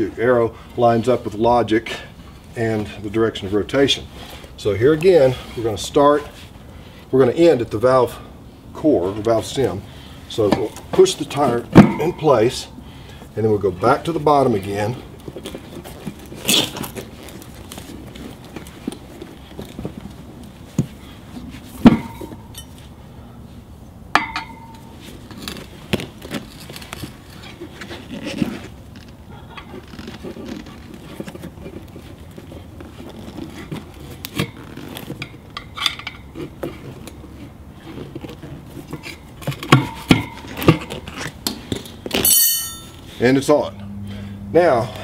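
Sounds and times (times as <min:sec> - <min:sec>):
tire irons clinking on wheel rim: 0:10.3 - 0:12.7, 0:13.8 - 0:22.9, 0:24.1 - 0:43.6.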